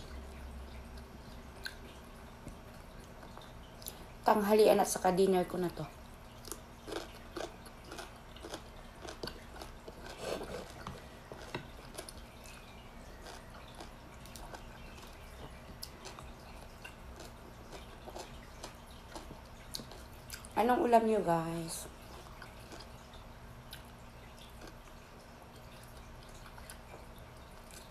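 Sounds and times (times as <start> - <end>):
faint low hum: 0.0 - 27.9
person chewing: 6.4 - 20.5, 22.0 - 23.0, 23.7 - 24.9, 25.6 - 27.9.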